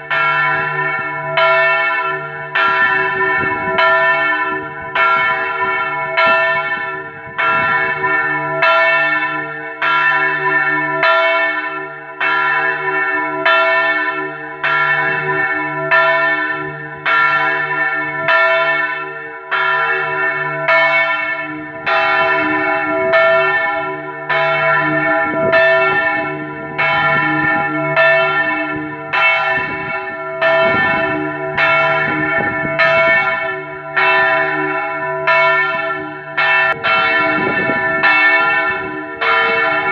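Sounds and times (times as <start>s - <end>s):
church bell ringing: 0.0s - 39.9s.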